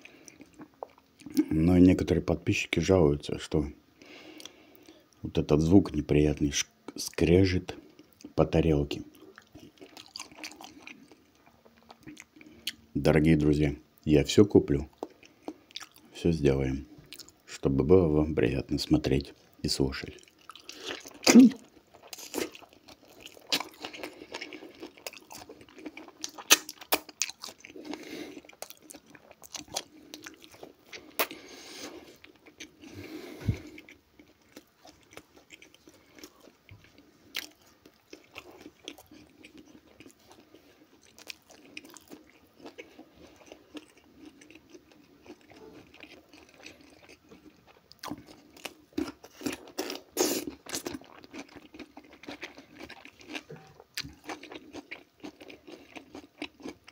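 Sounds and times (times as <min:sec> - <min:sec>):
chewing and crunching food: 0:00.0 - 0:02.7, 0:06.5 - 0:12.9, 0:14.4 - 0:56.9.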